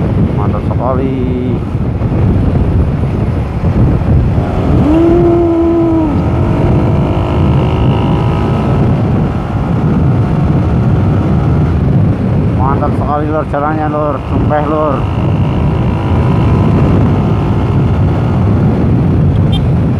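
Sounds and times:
motorcycle rumbling: 0:00.0 - 0:19.9
wind rushing over microphone: 0:00.0 - 0:19.9
steady pitched tone: 0:04.2 - 0:11.7.

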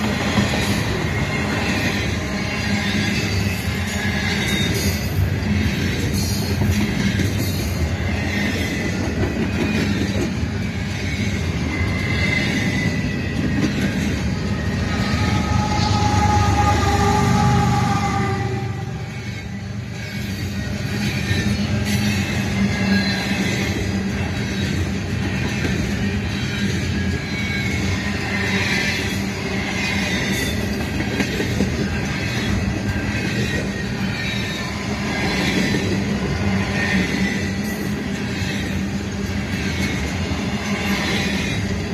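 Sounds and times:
locomotive passing: 0:00.0 - 0:41.9
train wheels rumbling on rails: 0:00.0 - 0:41.9.

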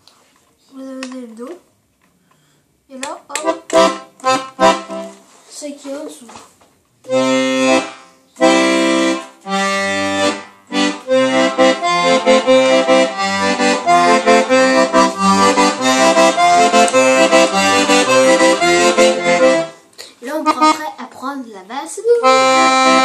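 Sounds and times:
button accordion playing: 0:03.4 - 0:05.2, 0:07.1 - 0:20.9, 0:22.2 - 0:23.0.

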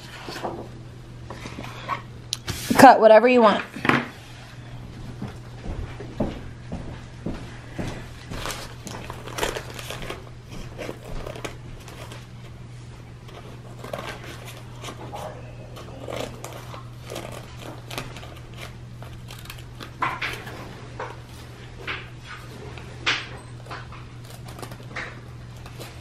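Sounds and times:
low steady hum: 0:00.0 - 0:26.0
paper crinkling and rustling: 0:08.2 - 0:26.0
scissors snipping paper bag: 0:08.4 - 0:12.3, 0:13.2 - 0:21.5, 0:23.5 - 0:26.0.

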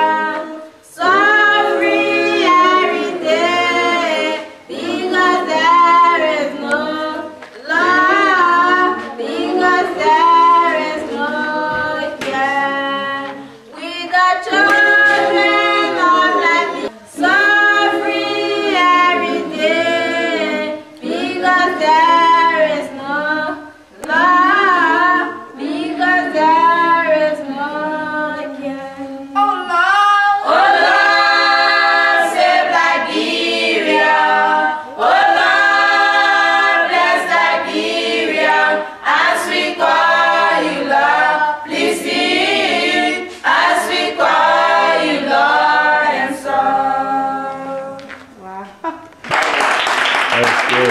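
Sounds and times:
girl singing a cappella: 0:00.0 - 0:33.1
children singing: 0:00.0 - 0:48.0.

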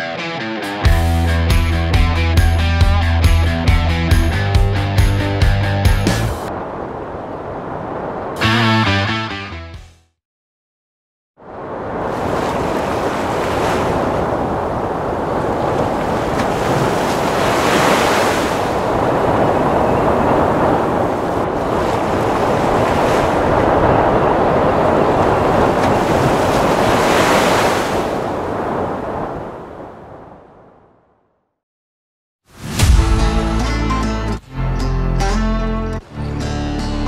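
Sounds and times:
sea surf breaking: 0:06.1 - 0:09.1, 0:11.4 - 0:30.4
wind: 0:06.3 - 0:08.7, 0:11.4 - 0:31.1.

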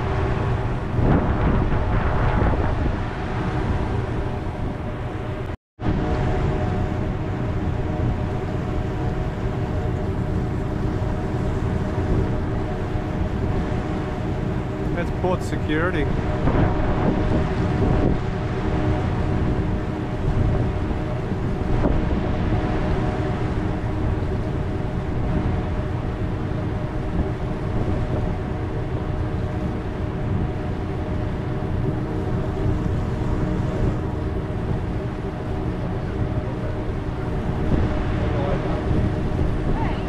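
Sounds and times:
ferry engines rumbling: 0:00.0 - 0:40.0
wind buffeting microphone: 0:00.0 - 0:40.0.

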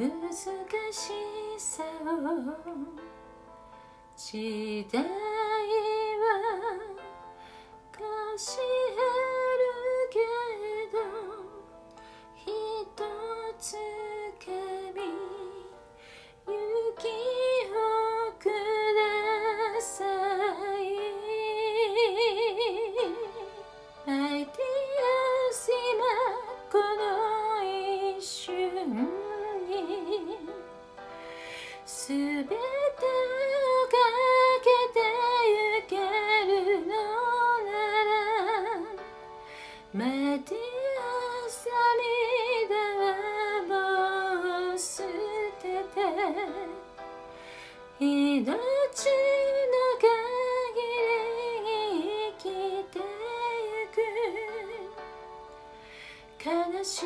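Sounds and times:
soft instrumental backing track: 0:00.0 - 0:57.0
woman singing with vibrato: 0:04.2 - 0:07.1, 0:16.5 - 0:30.7, 0:31.8 - 0:39.0, 0:39.9 - 0:46.9.

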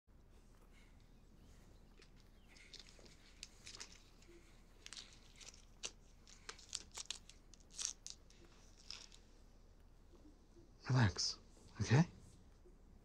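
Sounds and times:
plastic and clothing rustling: 0:00.4 - 0:09.4.

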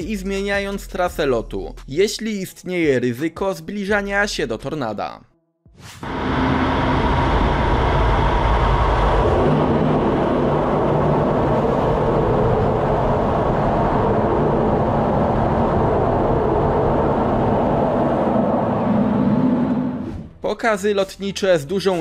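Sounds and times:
jet engine rushing noise: 0:05.8 - 0:20.4
constant low drone: 0:06.0 - 0:20.0.

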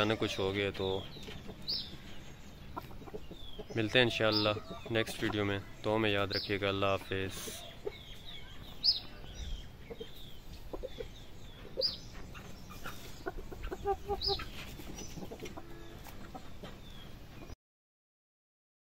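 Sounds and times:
chickens clucking: 0:00.0 - 0:17.6
chicken high calls: 0:07.2 - 0:16.7.

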